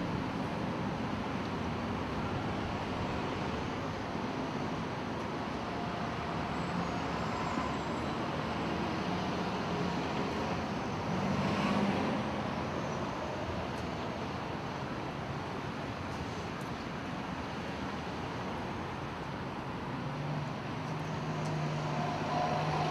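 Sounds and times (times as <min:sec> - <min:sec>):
city street traffic: 0:00.0 - 0:22.9
vehicle passing: 0:20.2 - 0:22.9.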